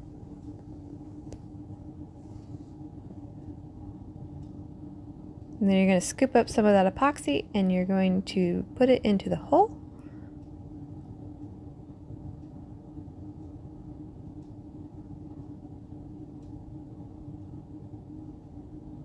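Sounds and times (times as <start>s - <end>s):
constant droning tone: 0.0s - 19.0s
low background hum: 0.0s - 19.0s
faint light ticks: 4.4s - 4.6s, 14.3s - 14.6s, 16.3s - 16.7s.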